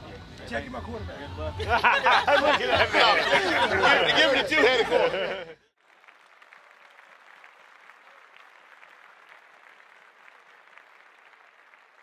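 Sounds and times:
faint applause: 5.8 - 12.0.

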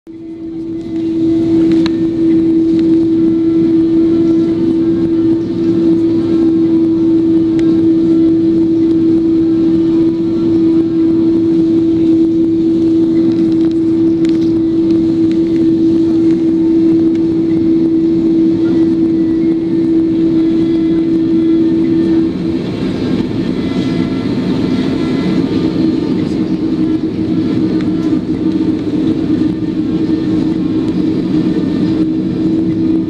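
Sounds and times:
loud steady cabin hum: 0.0 - 33.0
low uneven rumble: 0.1 - 33.0.

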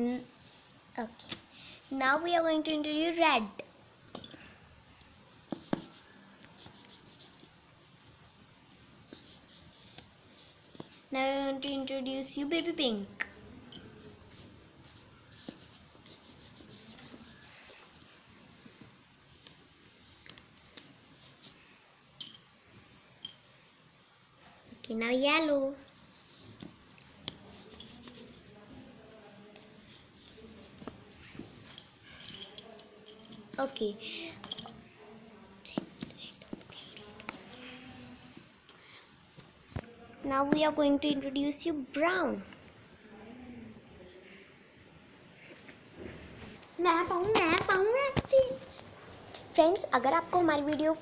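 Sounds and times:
pencil scratching on paper: 4.9 - 7.5, 8.9 - 11.0, 14.2 - 18.8, 25.8 - 28.7, 29.6 - 31.6.

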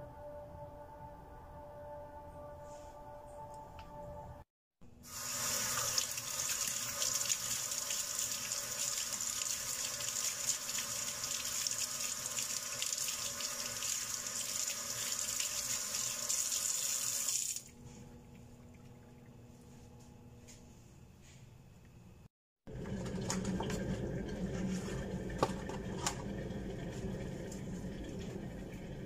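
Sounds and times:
tap water running into sink: 5.1 - 17.7, 22.8 - 29.0.

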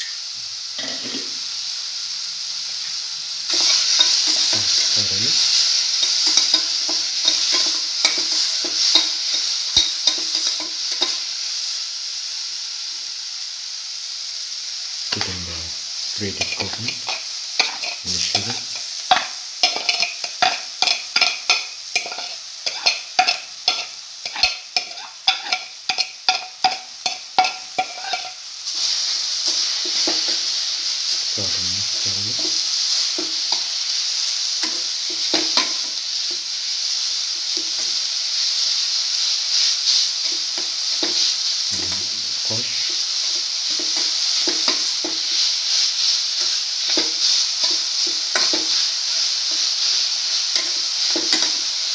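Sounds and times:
food sizzling in oil: 0.0 - 51.9
metal spatula scraping: 3.5 - 11.2, 16.4 - 30.5
metal utensil tapping steel pan: 6.0 - 11.2, 19.1 - 28.3.

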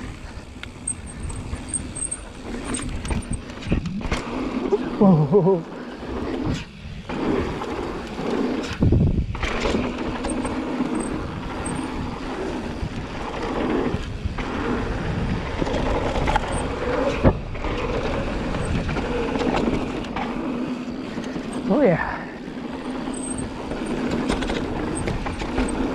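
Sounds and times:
bike rattling: 0.0 - 25.9
tyres rumbling on dirt: 9.3 - 25.9.

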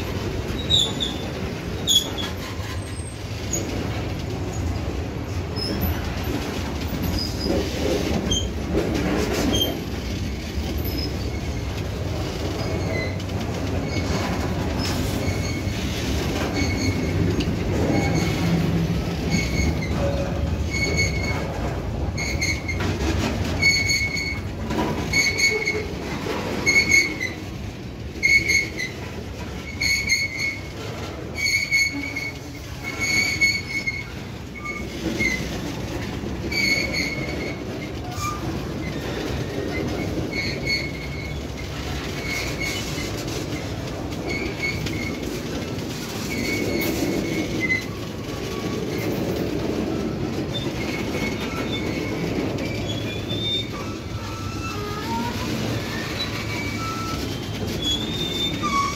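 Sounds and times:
metallic wheel squeal: 0.0 - 3.7, 13.8 - 21.6, 22.2 - 26.0, 26.6 - 27.5, 28.2 - 35.6, 36.4 - 58.9
train wheels rumbling on rail: 0.0 - 58.9.

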